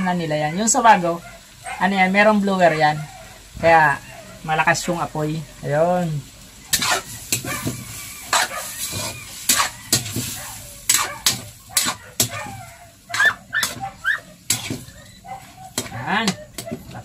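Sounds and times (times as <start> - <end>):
light sizzle of frying: 0.0 - 17.0
metal spatula scraping a wok: 6.6 - 17.0.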